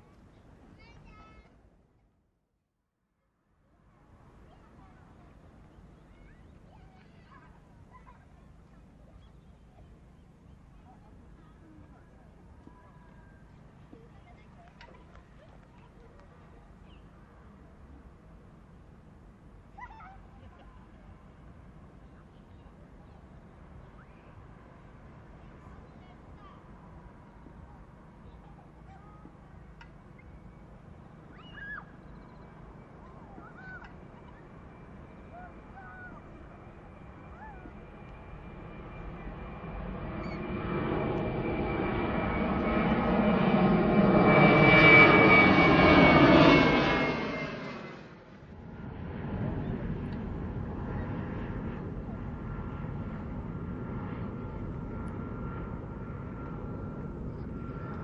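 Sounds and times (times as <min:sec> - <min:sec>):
distant jet engines rumbling: 0:17.8 - 0:58.0
birds whistling calls: 0:31.3 - 0:32.5.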